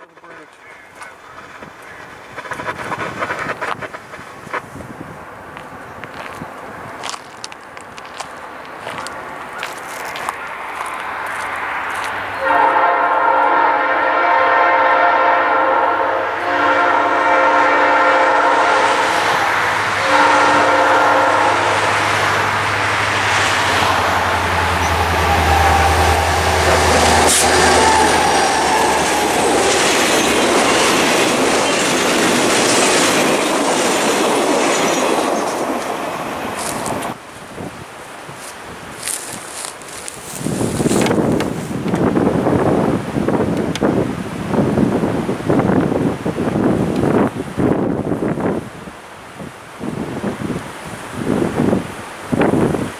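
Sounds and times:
train wheels rolling on rails: 0.0 - 48.7
locomotive horn blasts: 12.4 - 19.2, 20.0 - 22.1, 24.7 - 29.0
diesel engine rumbling: 21.2 - 32.7.

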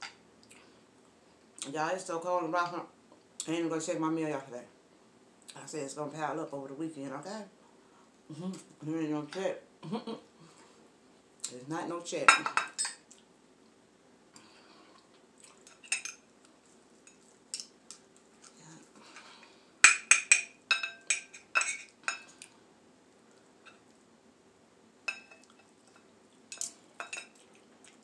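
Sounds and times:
cutlery scraping on plate: 19.8 - 22.3, 26.5 - 27.4.

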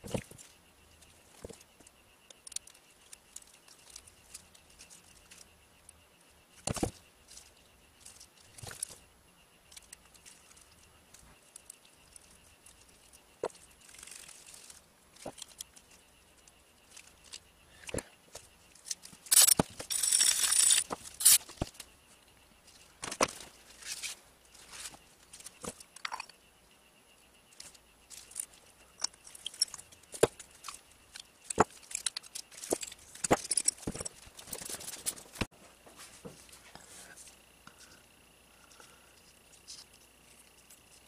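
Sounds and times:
metal parts clicking and tapping: 18.3 - 21.9, 27.5 - 35.5.

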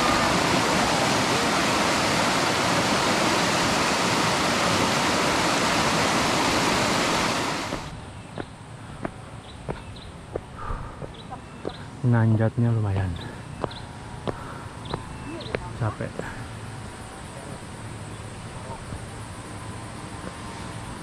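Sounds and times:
river rushing: 0.0 - 8.0.

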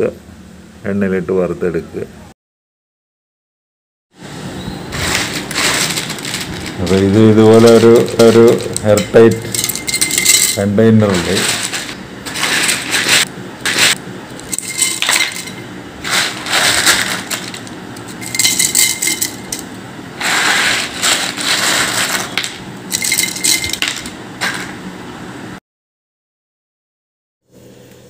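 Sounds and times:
chips rattling in glass jar: 5.0 - 24.7.

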